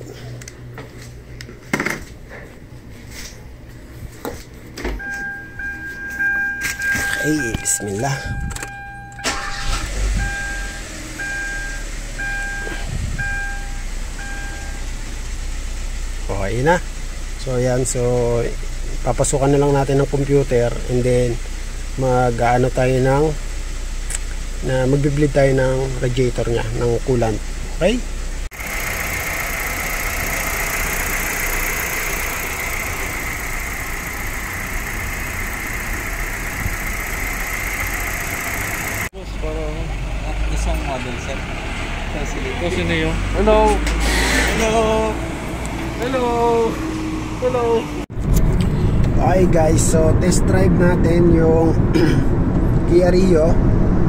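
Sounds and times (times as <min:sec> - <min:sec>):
car engine starting and running: 0:04.7 - 0:54.0
dashboard warning chime beeping: 0:05.0 - 0:14.9, 0:29.5 - 0:39.1.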